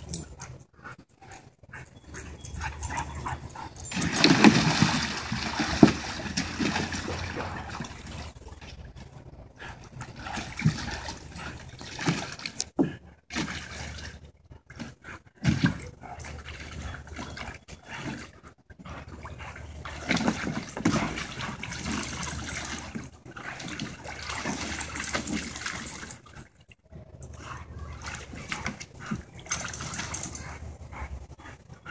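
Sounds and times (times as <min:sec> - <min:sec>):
dogs splashing water in a pool: 0:00.0 - 0:31.9.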